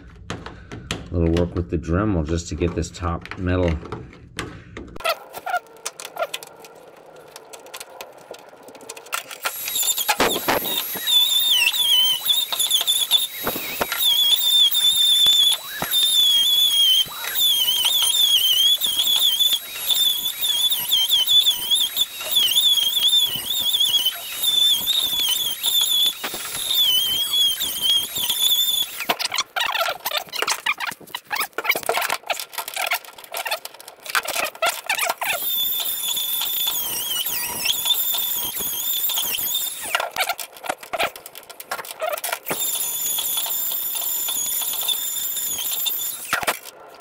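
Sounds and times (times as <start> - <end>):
rotary tool grinding metal: 5.0 - 46.8.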